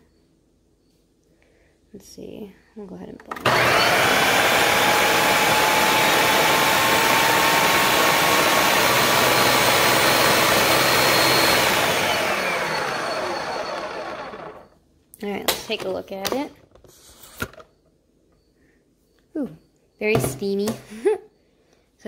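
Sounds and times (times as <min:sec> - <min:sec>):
food processor motor whining: 0:03.3 - 0:14.8.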